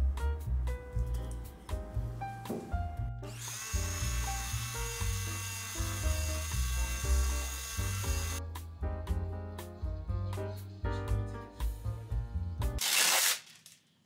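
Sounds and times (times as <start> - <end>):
background music with bass line: 0.0 - 3.3, 6.8 - 12.8
immersion blender motor whine: 3.3 - 8.4.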